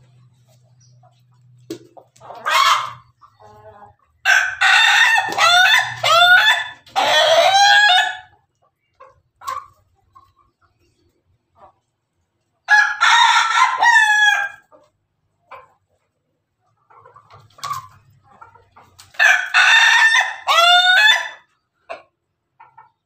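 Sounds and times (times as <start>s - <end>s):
rooster crowing: 4.3s - 8.3s, 19.2s - 21.4s
soft clucks: 8.5s - 12.0s, 14.7s - 19.1s, 21.5s - 23.0s.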